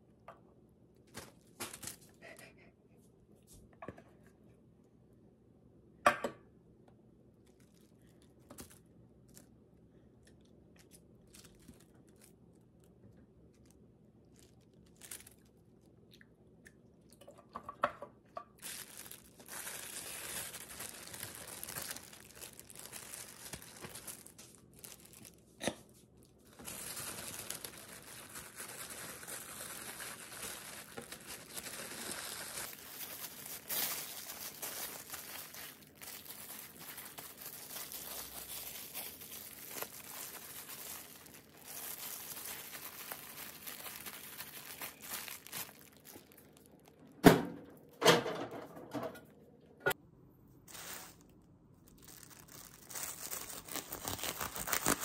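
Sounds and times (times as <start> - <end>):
plastic wrap crinkling: 1.0 - 2.4, 7.4 - 9.6, 10.3 - 15.9, 18.5 - 47.0, 50.7 - 55.0.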